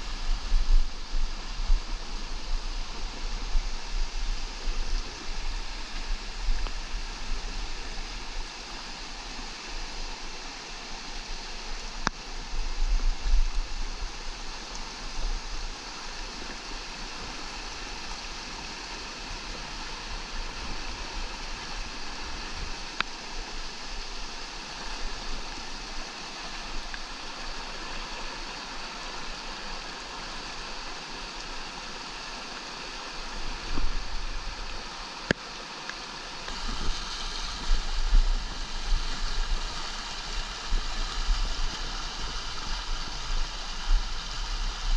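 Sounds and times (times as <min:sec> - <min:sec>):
creek rushing over boulders: 0:00.0 - 0:44.9.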